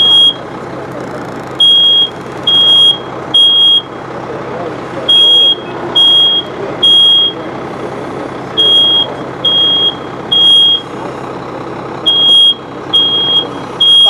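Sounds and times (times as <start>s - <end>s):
smoke alarm beeping: 0.0s - 0.4s, 1.6s - 4.0s, 5.1s - 7.4s, 8.6s - 10.9s, 12.1s - 14.0s
fire truck engine idling: 0.0s - 14.0s.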